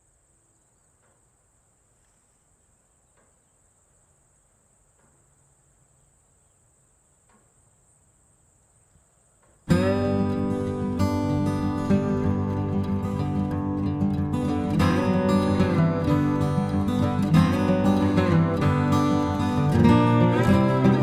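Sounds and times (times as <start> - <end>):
insects chirring: 0.0 - 21.0
strummed acoustic guitar music: 9.6 - 21.0.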